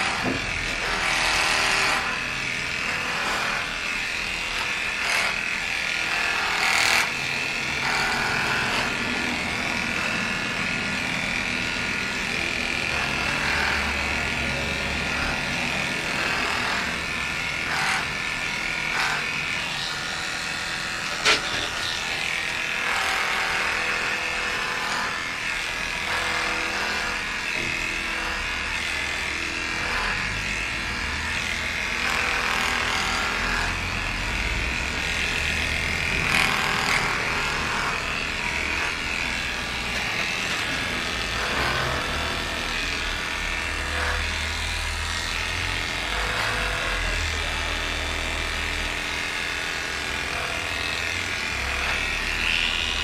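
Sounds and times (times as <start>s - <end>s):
electric clippers running: 0.0s - 53.0s.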